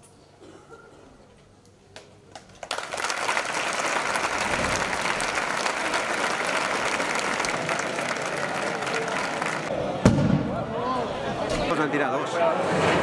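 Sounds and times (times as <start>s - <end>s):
crowd applauding: 2.3s - 9.7s.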